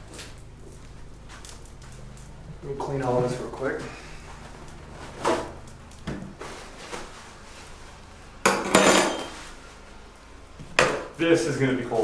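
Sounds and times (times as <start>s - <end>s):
objects clattering: 8.5s - 9.5s.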